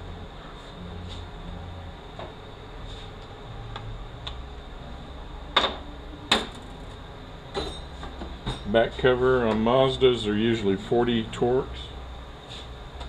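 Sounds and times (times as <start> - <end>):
low steady hum: 0.0 - 9.6
sharp knocks: 6.3 - 6.9.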